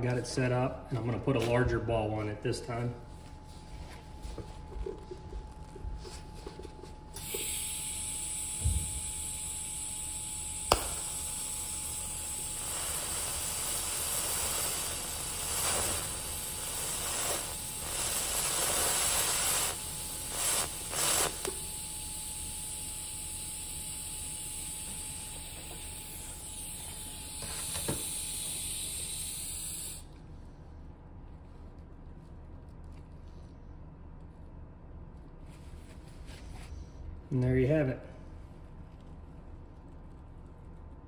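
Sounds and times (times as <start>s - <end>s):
steady hiss: 7.2s - 30.1s
welding arc hissing: 7.2s - 30.1s.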